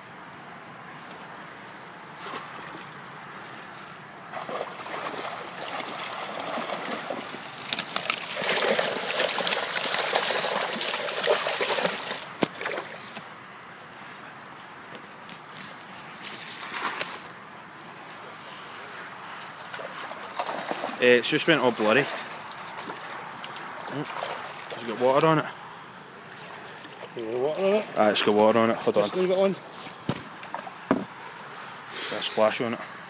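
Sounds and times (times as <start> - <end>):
water splashing: 2.2 - 3.6, 4.3 - 13.2, 19.4 - 29.5
fish thrashing at surface: 4.4 - 13.0, 19.7 - 21.0.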